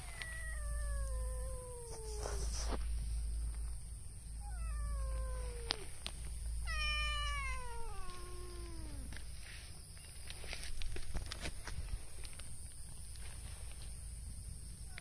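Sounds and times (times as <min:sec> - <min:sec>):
cat meowing: 0:00.0 - 0:02.7, 0:04.4 - 0:09.2.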